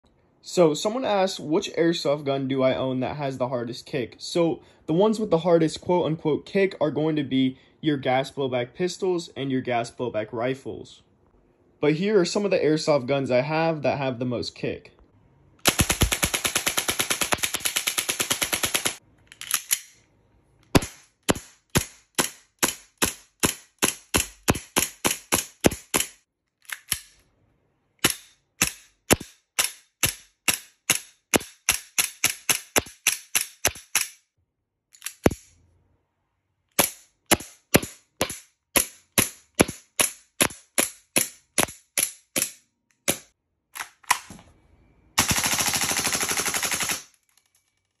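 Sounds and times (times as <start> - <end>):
airsoft gun shots: 20.8 - 26.1.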